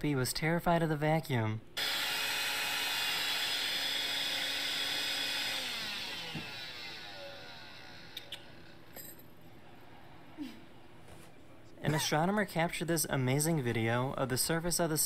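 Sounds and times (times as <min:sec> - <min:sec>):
vacuum cleaner running: 0:01.8 - 0:08.8.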